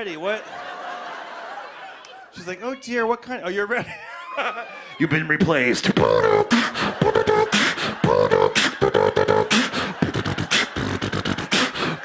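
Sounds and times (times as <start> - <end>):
man beatboxing into microphone: 5.0 - 12.0.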